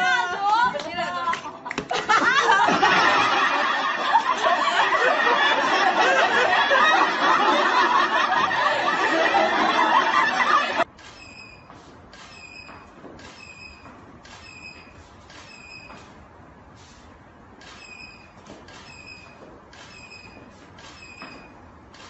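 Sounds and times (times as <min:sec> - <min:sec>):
group of people laughing: 0:01.0 - 0:10.9.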